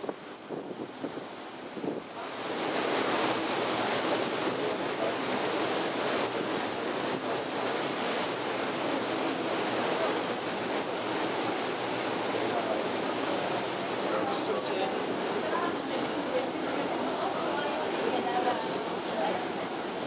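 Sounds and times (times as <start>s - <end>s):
wind buffeting microphone: 0.0s - 2.8s
boat wake rushing: 0.0s - 20.0s.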